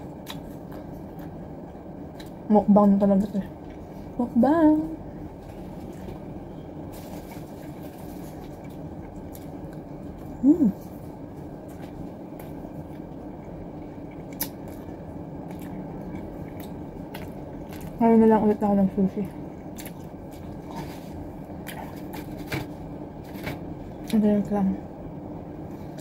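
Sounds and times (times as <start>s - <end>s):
person chewing food: 0.0s - 2.4s, 7.2s - 18.0s, 19.5s - 22.6s
room hum: 0.0s - 26.0s
woman humming: 10.3s - 10.9s.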